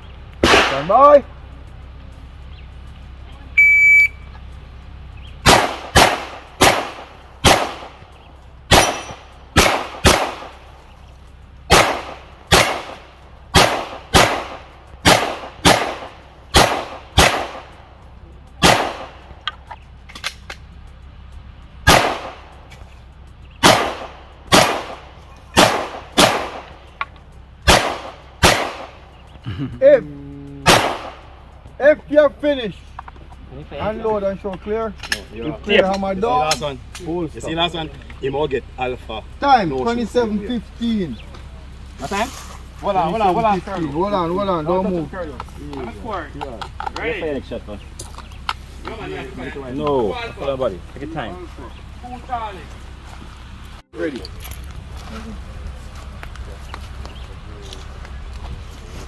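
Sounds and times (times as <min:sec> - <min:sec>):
handgun shots: 0:00.4 - 0:00.9, 0:05.4 - 0:08.0, 0:08.7 - 0:10.6, 0:11.7 - 0:17.7, 0:18.6 - 0:19.2, 0:21.9 - 0:22.4, 0:23.6 - 0:25.0, 0:25.6 - 0:26.8, 0:27.7 - 0:29.0, 0:30.7 - 0:31.2
shot timer beep: 0:03.6 - 0:04.3.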